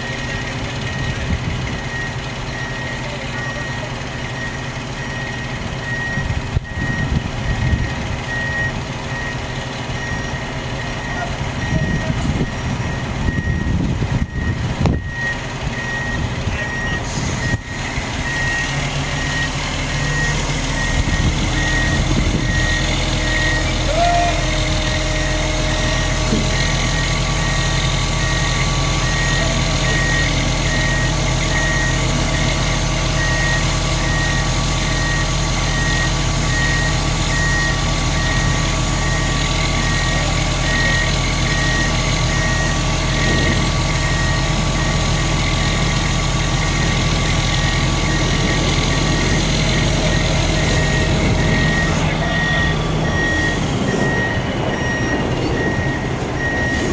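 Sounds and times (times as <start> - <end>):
crane diesel engine under load: 0.0 - 56.9
electronic warning beeper: 50.0 - 56.9.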